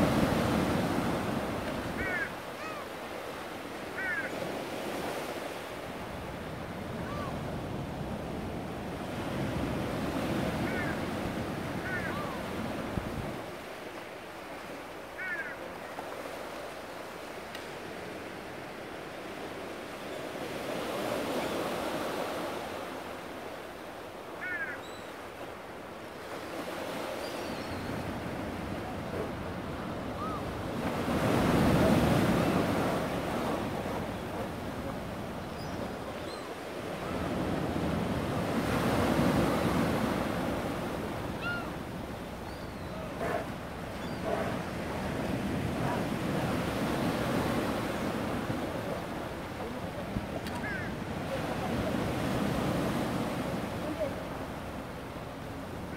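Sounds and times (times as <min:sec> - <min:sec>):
sea waves breaking over rock: 0:00.0 - 0:14.9
faint gull calls: 0:01.9 - 0:02.9, 0:03.9 - 0:04.5, 0:10.3 - 0:12.6, 0:15.2 - 0:16.0, 0:24.4 - 0:25.2, 0:30.1 - 0:30.6, 0:41.3 - 0:41.8, 0:50.4 - 0:51.0.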